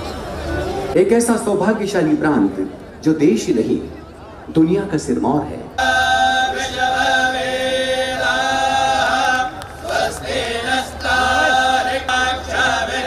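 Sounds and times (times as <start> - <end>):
group chanting in unison: 5.8 - 13.0.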